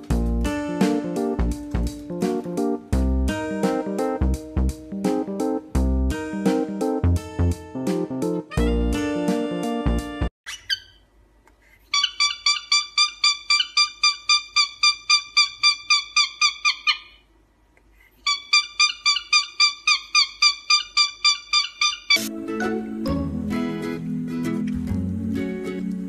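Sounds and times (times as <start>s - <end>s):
cockatiel chirping: 10.5s - 11.0s, 11.9s - 17.2s, 18.2s - 22.3s.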